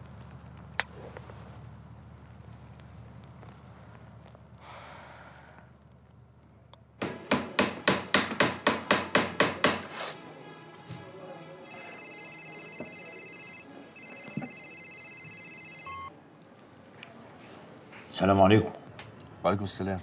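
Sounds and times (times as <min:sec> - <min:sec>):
mobile phone ringing: 0:11.7 - 0:16.1.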